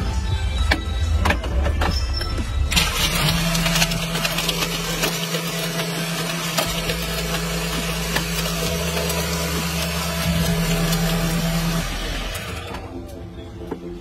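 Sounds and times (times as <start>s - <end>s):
ice rattling in jar: 2.7s - 11.8s
blender motor running: 2.7s - 12.9s.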